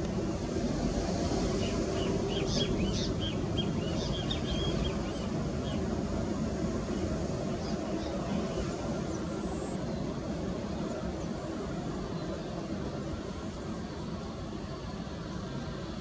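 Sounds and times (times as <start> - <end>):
jet engines rumbling: 0.0 - 16.0
small birds chirping: 1.6 - 5.8.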